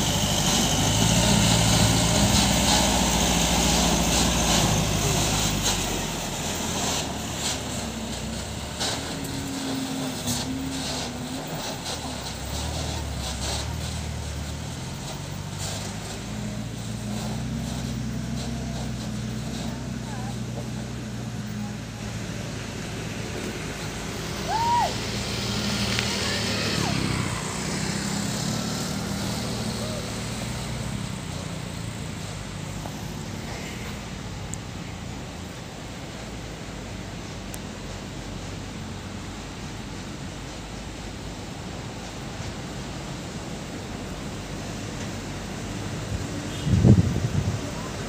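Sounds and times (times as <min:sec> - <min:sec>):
diesel truck engine humming: 0:00.0 - 0:48.0
rising and falling whistle: 0:24.4 - 0:25.1.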